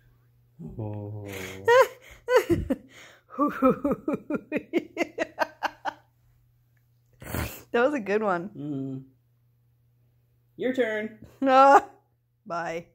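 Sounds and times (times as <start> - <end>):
person laughing: 0.6 - 6.0.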